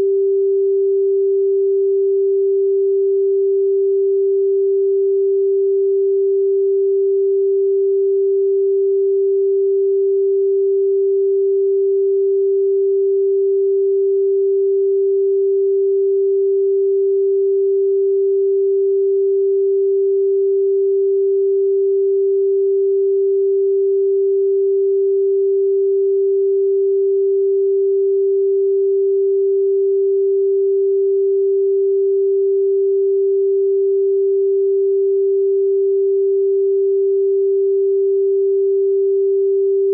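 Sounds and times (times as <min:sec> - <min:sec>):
steady sine tone: 0:00.0 - 0:39.9.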